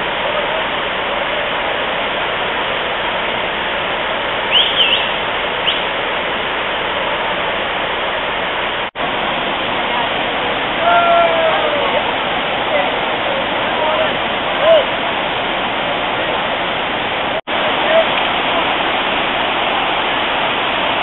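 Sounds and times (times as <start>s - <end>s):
waterfall rushing: 0.0s - 21.0s
short high chirps: 4.5s - 5.9s.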